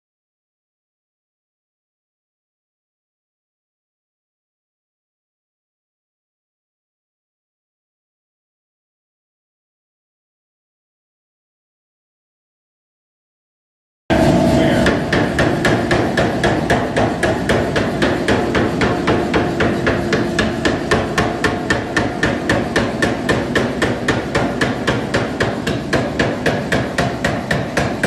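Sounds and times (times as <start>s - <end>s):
power hammer pounding steel: 14.1s - 28.0s.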